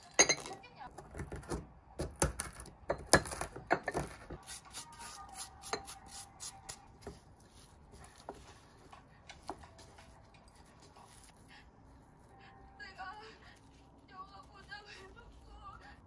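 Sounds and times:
ceramic bowls clinking: 0.0s - 0.6s.

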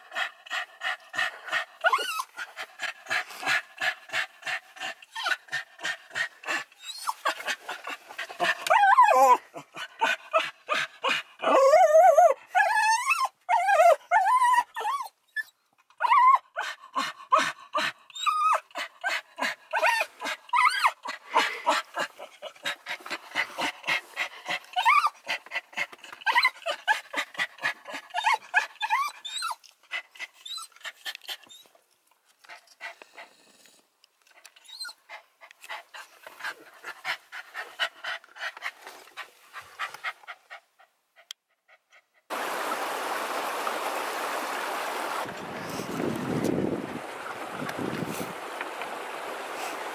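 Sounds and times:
dog panting: 0.0s - 8.8s, 16.6s - 29.3s, 32.4s - 33.6s, 34.2s - 42.3s
dog whining: 1.5s - 2.5s, 5.1s - 5.4s, 6.5s - 7.5s, 8.4s - 22.6s, 24.7s - 25.3s, 26.1s - 27.2s, 27.9s - 29.6s, 30.4s - 31.8s, 34.6s - 35.1s
wind noise on microphone: 45.1s - 49.5s.

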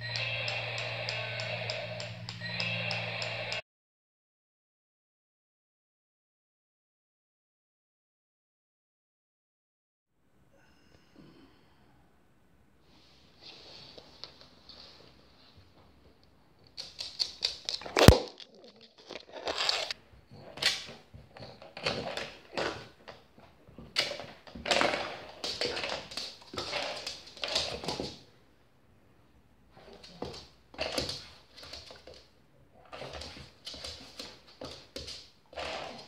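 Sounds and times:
toy scuffling on floor: 16.7s - 22.9s, 32.9s - 36.0s.

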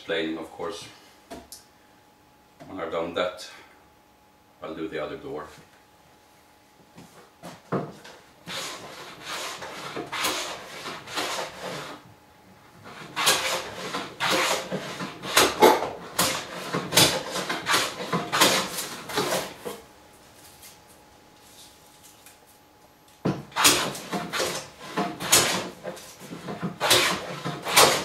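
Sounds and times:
plane shaving wood: 8.4s - 12.0s, 12.8s - 19.8s, 23.5s - 28.0s.

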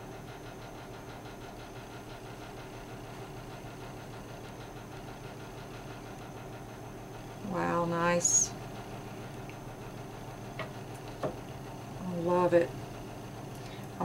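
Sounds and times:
low mechanical room hum: 0.0s - 14.0s.

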